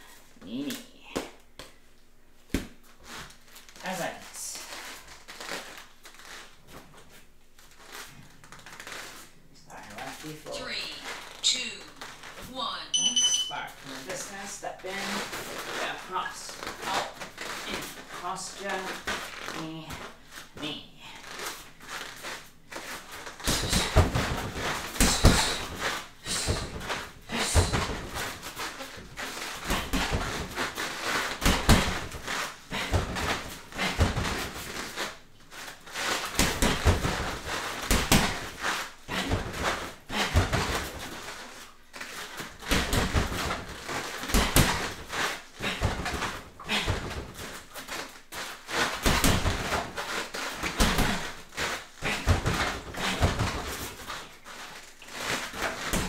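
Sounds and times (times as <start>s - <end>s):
punches and kicks thudding: 31.4s - 32.2s, 36.3s - 38.5s, 42.6s - 47.4s, 48.9s - 50.0s, 50.6s - 51.4s.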